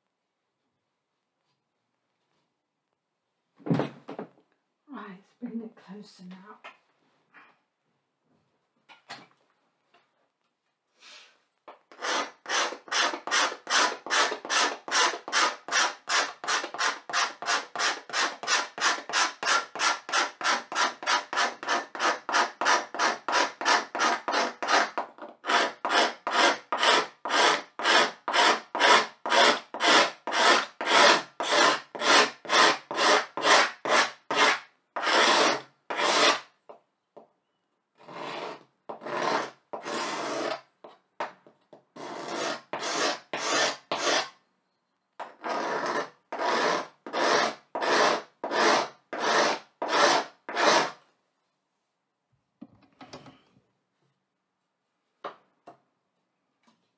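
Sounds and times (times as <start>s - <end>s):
hand tool scratching a board: 11.9s - 36.5s, 38.0s - 40.7s, 42.0s - 44.4s, 45.2s - 51.0s.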